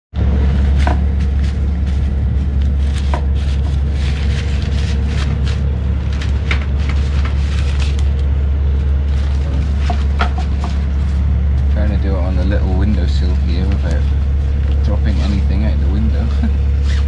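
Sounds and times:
steady low rumble: 0:00.2 - 0:17.0
fabric rustling: 0:00.5 - 0:11.8.

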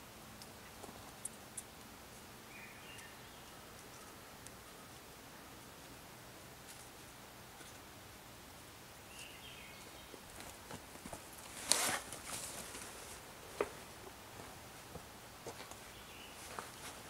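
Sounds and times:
footsteps on forest floor: 0:10.2 - 0:17.0.

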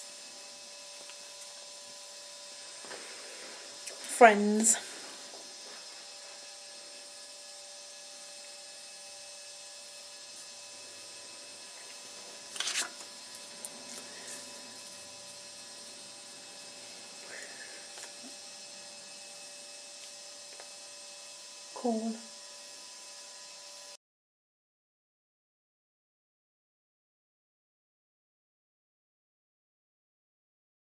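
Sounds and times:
steady electrical hum: 0:00.0 - 0:24.0.

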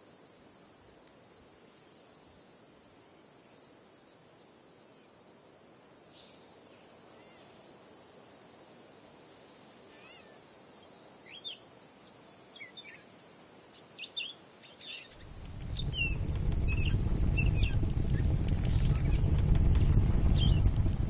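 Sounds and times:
low rushing noise: 0:15.2 - 0:21.0.

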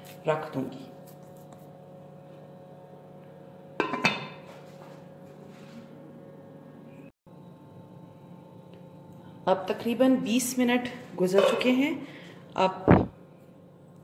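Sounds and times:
glass lid clinking on glass bowl: 0:03.8 - 0:04.4.

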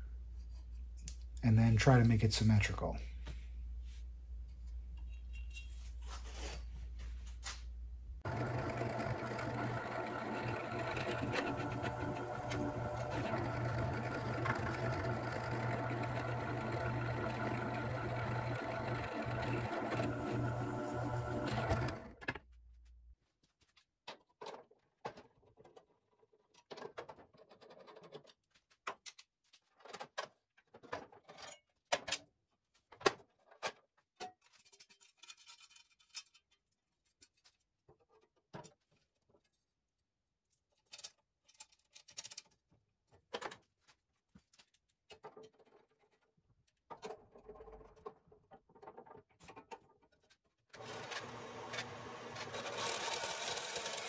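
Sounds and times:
bandsaw running: 0:08.2 - 0:22.2, 0:50.8 - 0:54.0.

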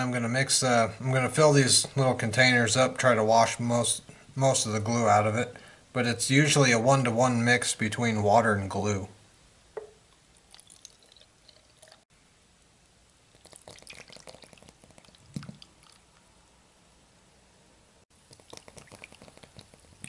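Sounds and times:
water poured into bottle: 0:10.3 - 0:12.0, 0:13.3 - 0:16.1, 0:18.2 - 0:20.0
glue squirting and dripping: 0:13.2 - 0:16.2, 0:18.2 - 0:20.0.

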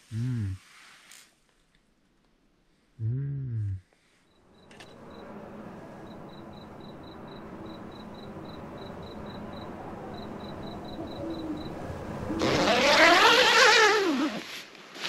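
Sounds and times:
night forest background: 0:00.0 - 0:15.0
cricket chirping: 0:04.2 - 0:12.8.

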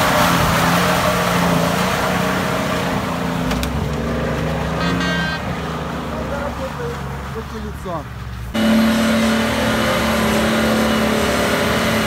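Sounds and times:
engine running under load: 0:08.2 - 0:12.0.

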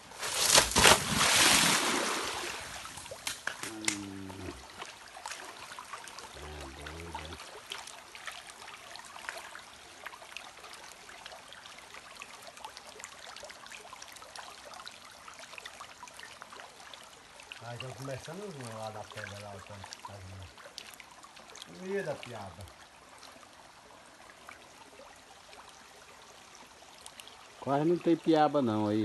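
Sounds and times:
stream water trickling: 0:00.0 - 0:29.0
loud rushing splash: 0:00.2 - 0:02.9.

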